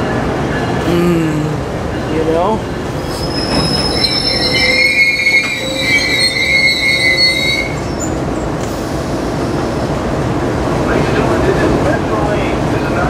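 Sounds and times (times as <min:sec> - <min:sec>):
low train rumble: 0:00.0 - 0:13.0
train wheels squealing: 0:03.0 - 0:08.2.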